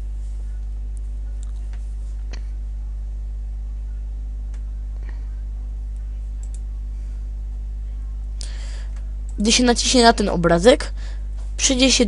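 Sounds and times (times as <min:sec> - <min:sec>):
low electrical mains hum: 0:00.0 - 0:12.0
computer mouse clicks: 0:06.4 - 0:06.6.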